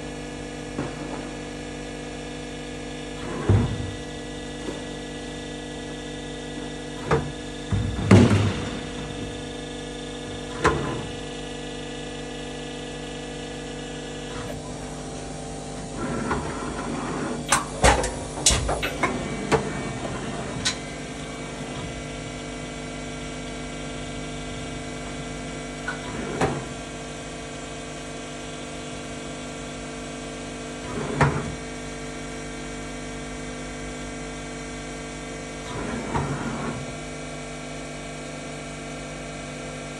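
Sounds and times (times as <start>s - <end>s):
machine hum of held tones: 0.0s - 30.9s
clunks and clicks: 17.4s - 20.9s.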